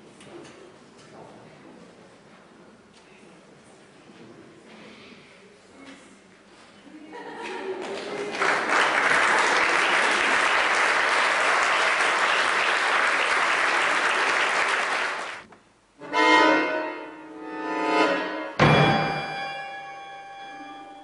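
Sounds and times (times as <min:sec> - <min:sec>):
audience applauding: 0:07.6 - 0:15.5
accordion held chord: 0:16.0 - 0:21.0.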